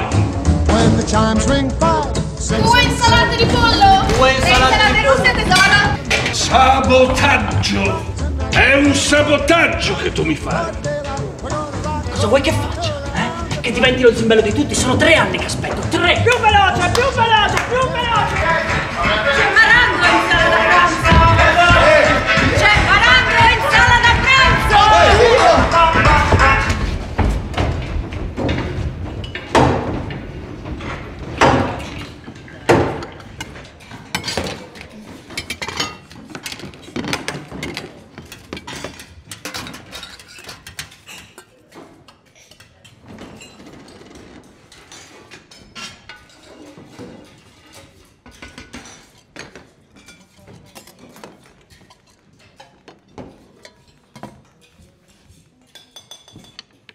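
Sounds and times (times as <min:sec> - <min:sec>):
pots and dishes clinking: 0:30.8 - 0:56.9.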